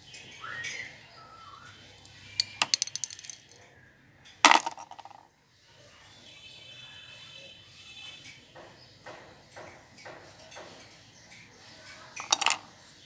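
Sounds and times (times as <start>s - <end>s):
plastic toys clattering in basket: 2.4s - 3.6s, 4.4s - 5.2s, 12.1s - 12.8s.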